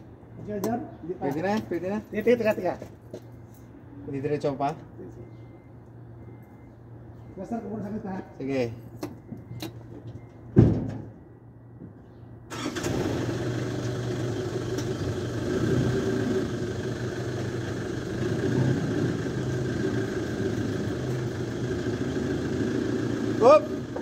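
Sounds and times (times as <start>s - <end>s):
engine starting and idling: 12.5s - 24.0s.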